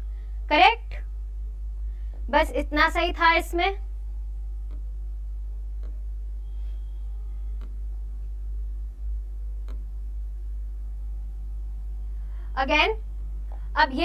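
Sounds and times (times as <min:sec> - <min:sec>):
low electrical hum: 0:00.0 - 0:14.0
faint clicks: 0:04.6 - 0:04.9, 0:05.8 - 0:06.0, 0:07.6 - 0:07.8, 0:09.6 - 0:09.9.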